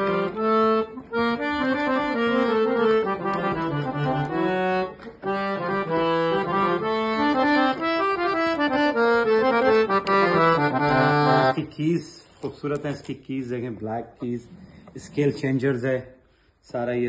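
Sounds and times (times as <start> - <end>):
harmonium playing a tune: 0.0 - 12.2.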